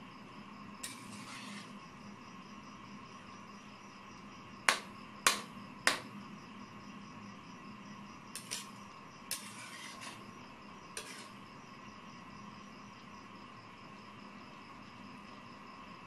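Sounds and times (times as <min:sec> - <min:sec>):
insects chirping: 0:00.0 - 0:16.0
metal ladle scraping a wok: 0:00.8 - 0:01.8, 0:08.4 - 0:10.2, 0:11.0 - 0:11.4.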